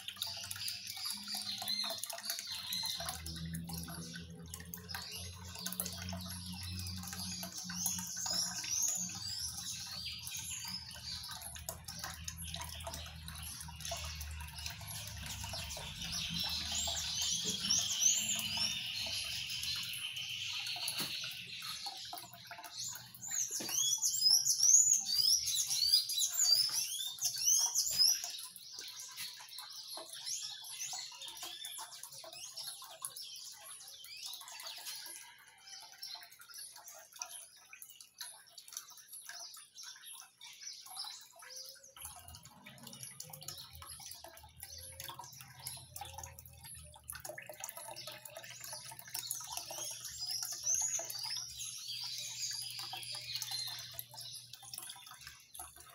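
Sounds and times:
bird chirping: 0:00.0 - 0:55.9
water trickling into basin: 0:00.0 - 0:55.9.

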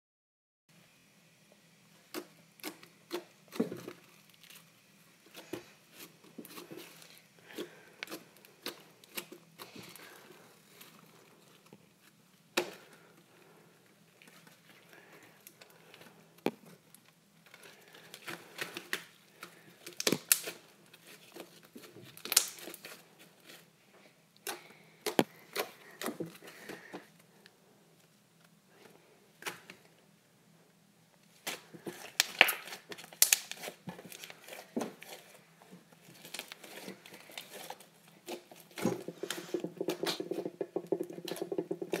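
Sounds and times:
slime crackling and squishing: 0:02.6 - 0:13.0, 0:14.0 - 0:23.8, 0:31.3 - 0:42.0.

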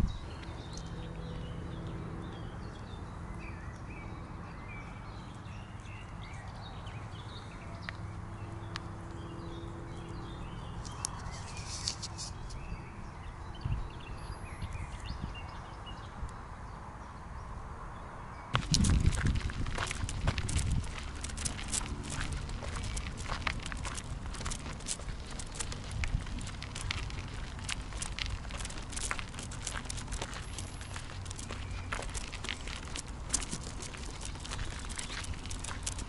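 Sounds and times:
small birds chirping: 0:00.0 - 0:17.6, 0:18.3 - 0:36.0
soft rustling: 0:11.1 - 0:12.6, 0:18.6 - 0:36.0
loud rustling clatter: 0:18.6 - 0:36.0.

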